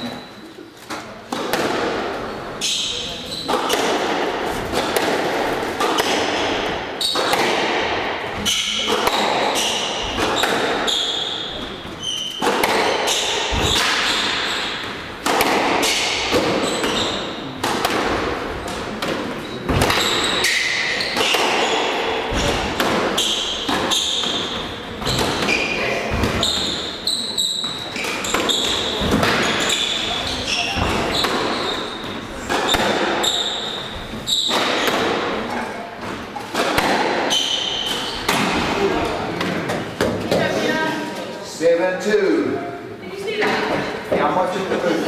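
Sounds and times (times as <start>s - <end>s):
squash ball cracking off racquets: 0.8s - 2.8s, 3.4s - 40.5s
shoes squeaking on wooden floor: 2.2s - 3.9s, 5.4s - 7.5s, 8.3s - 15.2s, 15.8s - 17.6s, 18.6s - 41.2s.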